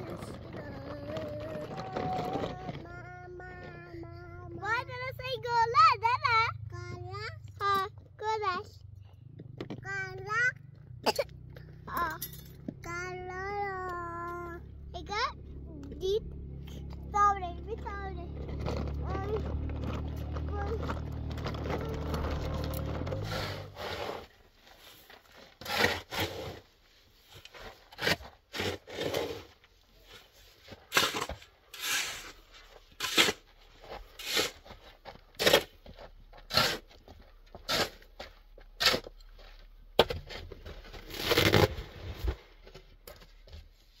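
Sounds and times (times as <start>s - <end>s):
shovel scraping dirt: 16.9s - 42.6s.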